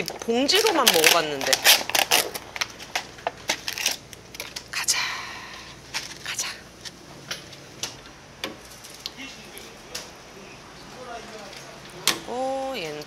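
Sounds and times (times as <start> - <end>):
food packaging crinkling: 0.0 - 4.7.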